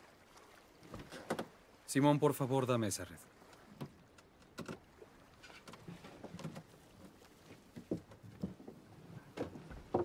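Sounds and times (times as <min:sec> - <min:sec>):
light knocks on wooden boat: 0:07.7 - 0:10.0.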